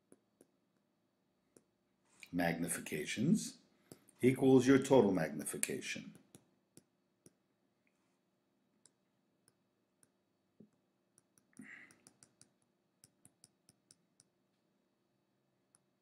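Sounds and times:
stylus tapping tablet screen: 0:08.8 - 0:14.4.

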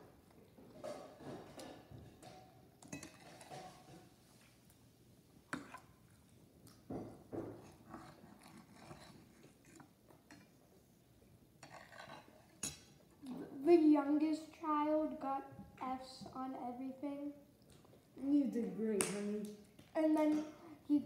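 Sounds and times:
metal fork clinking on dish: 0:02.3 - 0:03.8.

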